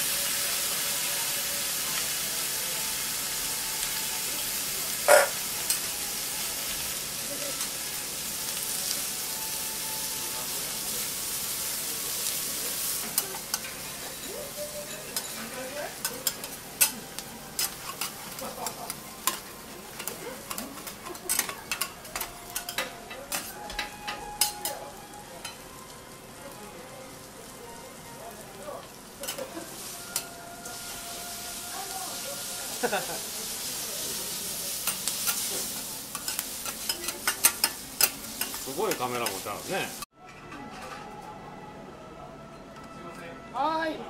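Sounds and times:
food sizzling on a griddle: 0.0 - 40.1
metal spatulas tapping and scraping: 13.0 - 24.7, 29.2 - 29.5, 34.8 - 39.5.

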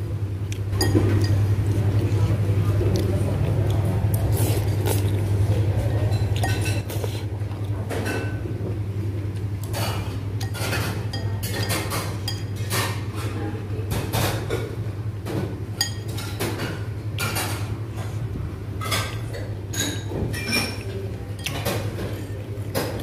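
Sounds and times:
steady low hum: 0.0 - 23.0
chopsticks and spoon clinking on bowl: 0.5 - 2.3, 6.0 - 8.4, 9.4 - 14.6, 15.8 - 18.1, 18.8 - 23.0
dishes and cutlery clattering: 6.1 - 6.9, 9.6 - 18.1, 18.8 - 23.0.

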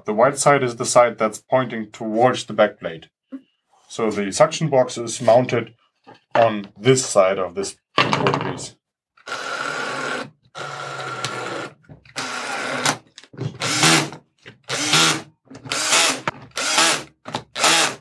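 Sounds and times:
cordless drill driving screws: 9.2 - 13.0, 13.6 - 18.0.

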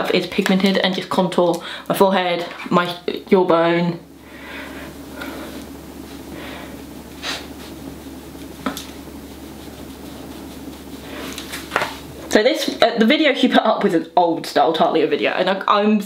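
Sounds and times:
room hum: 0.0 - 16.0
makeup brush swishing on skin: 5.0 - 12.2.

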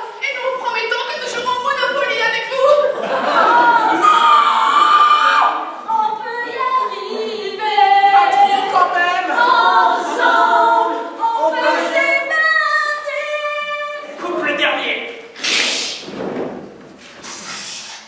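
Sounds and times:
voices singing unaccompanied: 1.3 - 14.5.

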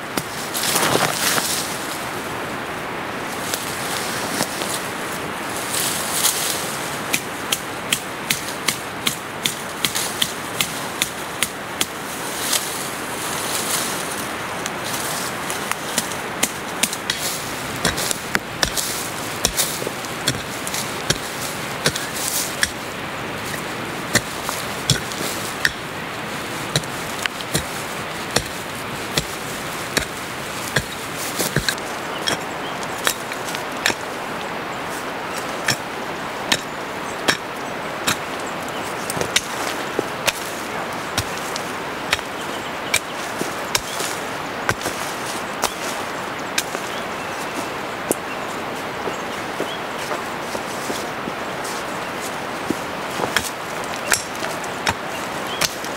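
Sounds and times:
steady background noise: 0.0 - 55.9
chopping tool striking soil: 16.0 - 22.8, 23.5 - 25.9, 26.7 - 29.4, 30.0 - 32.4, 36.5 - 36.7, 39.2 - 39.6, 40.2 - 40.5, 41.2 - 44.1, 44.7 - 45.0, 53.2 - 55.9.

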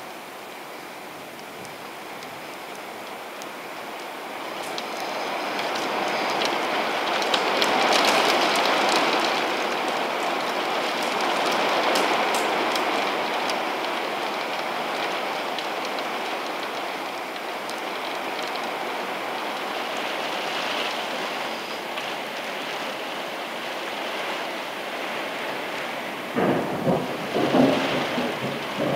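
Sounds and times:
rain falling steadily: 0.0 - 28.9.

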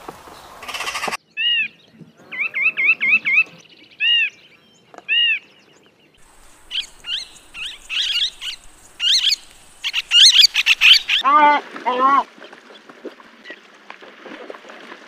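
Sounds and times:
nuthatch nasal calls: 0.6 - 1.7, 6.2 - 11.2
parakeets screeching: 6.4 - 11.2.

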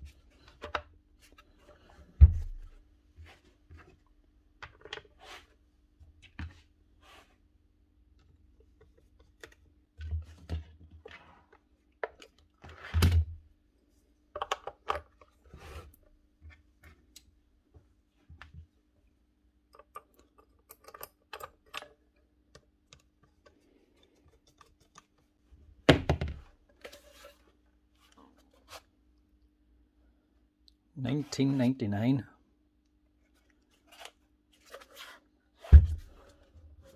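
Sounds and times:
plastic parts clicking and knocking: 14.3 - 15.4, 19.7 - 26.8.

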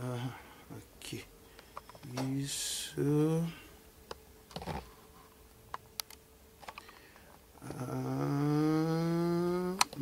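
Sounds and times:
man humming: 0.0 - 1.3, 2.2 - 3.7, 7.6 - 10.0.

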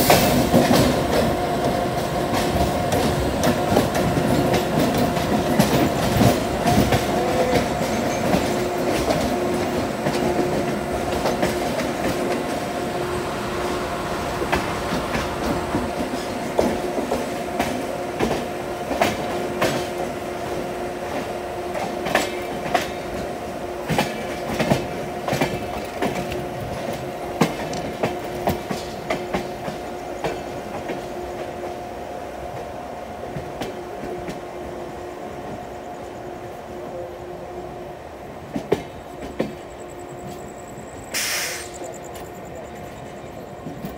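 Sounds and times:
train wheels knocking over rail joints: 0.0 - 12.6, 14.4 - 31.1
train rumble: 0.0 - 43.9.

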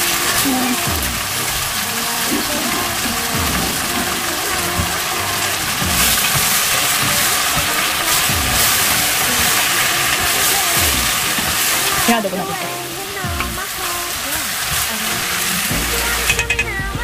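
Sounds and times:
chicken sizzling in a pot: 0.0 - 16.8.

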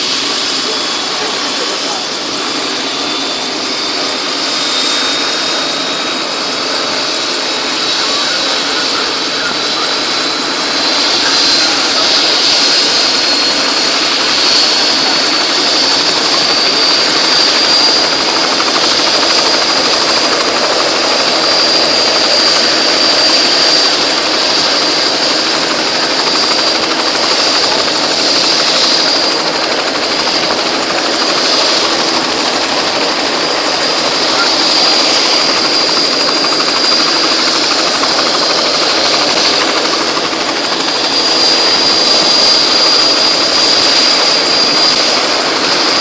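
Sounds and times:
helicopter engine and rotor rushing: 0.0 - 46.0
high turbine whine: 0.0 - 46.0.

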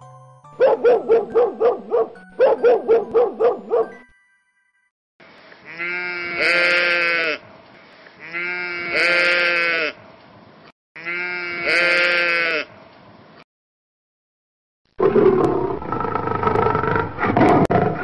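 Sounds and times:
dog barking: 0.6 - 4.0
sheep bleating: 5.6 - 7.4, 8.2 - 10.0, 11.0 - 12.7.

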